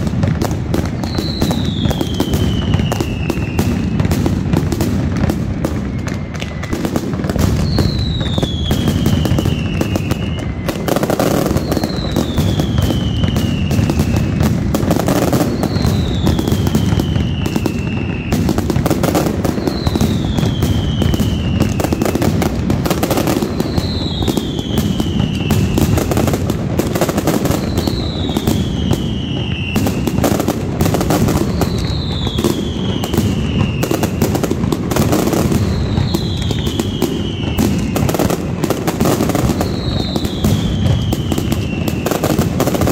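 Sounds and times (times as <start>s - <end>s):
firecrackers banging rapidly: 0.0s - 42.9s
falling whistle: 1.0s - 4.0s, 5.6s - 14.4s, 15.2s - 18.6s, 19.4s - 22.2s, 23.3s - 26.0s, 27.4s - 30.2s, 31.2s - 34.4s, 35.3s - 38.3s, 39.0s - 42.4s.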